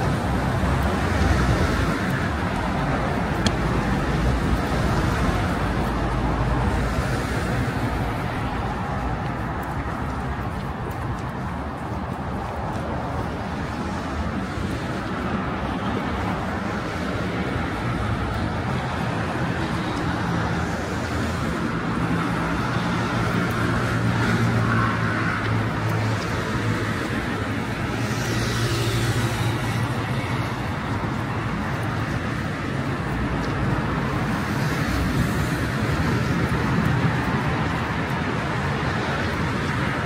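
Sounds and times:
car engines: 0.0s - 40.0s.

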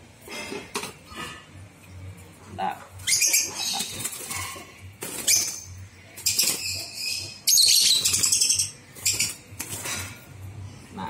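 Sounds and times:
birds fluttering wings in cage: 3.0s - 7.0s, 7.8s - 10.4s.

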